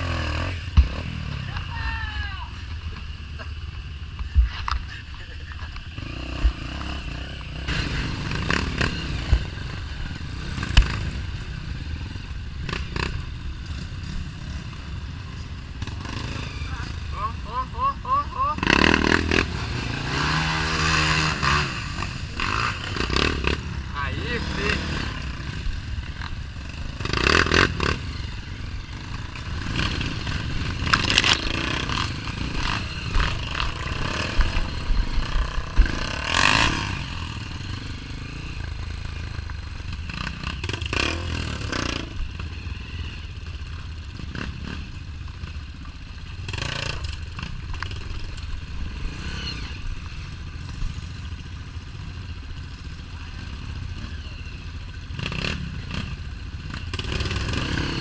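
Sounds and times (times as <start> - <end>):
motorcycle engine at low revs: 0.0 - 1.7, 2.5 - 58.0
clatter and scraping: 29.1 - 36.8.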